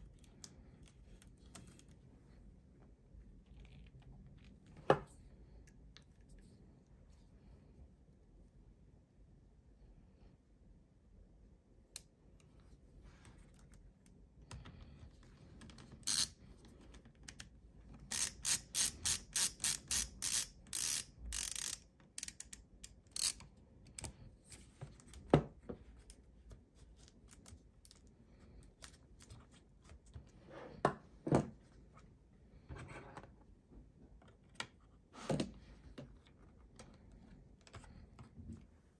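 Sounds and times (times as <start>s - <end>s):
ratchet screwdriver clicking: 16.0s - 16.3s, 18.1s - 23.4s.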